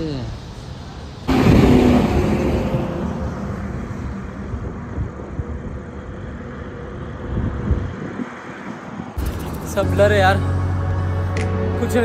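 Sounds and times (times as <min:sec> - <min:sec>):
steady road noise: 0:00.0 - 0:12.0
vehicle passing close by: 0:01.2 - 0:10.4.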